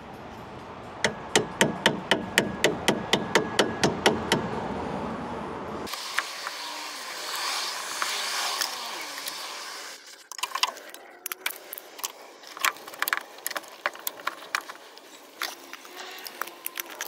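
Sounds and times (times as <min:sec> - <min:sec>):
hammer striking metal: 0:01.0 - 0:04.6.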